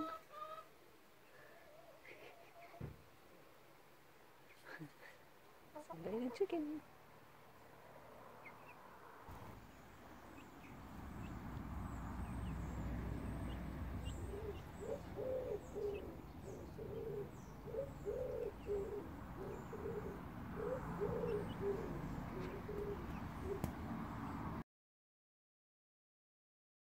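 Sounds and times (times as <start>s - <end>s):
small birds chirping: 4.3s - 6.8s, 7.5s - 24.6s
low background rumble: 9.3s - 24.6s
wood pigeon cooing: 12.2s - 24.1s.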